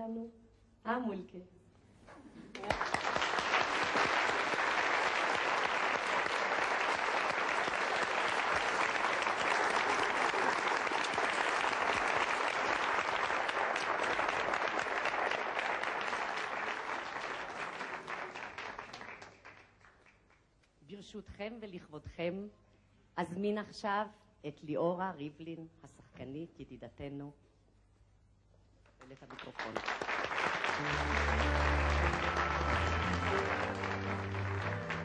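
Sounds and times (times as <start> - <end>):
large audience applauding: 2.5 - 20.5, 29.1 - 35.0.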